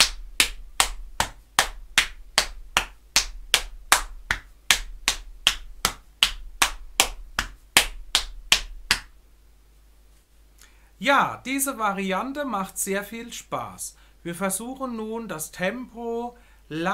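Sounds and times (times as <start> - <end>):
hand slaps on body: 0.0 - 9.1.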